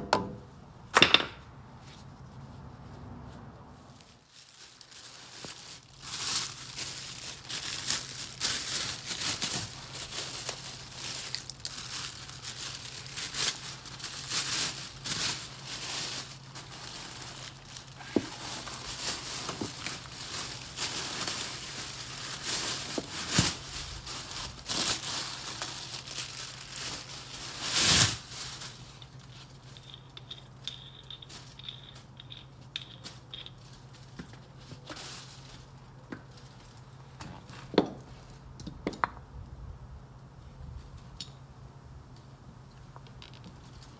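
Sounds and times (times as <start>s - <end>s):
plastic packaging crinkling: 3.9s - 30.3s, 33.0s - 38.3s.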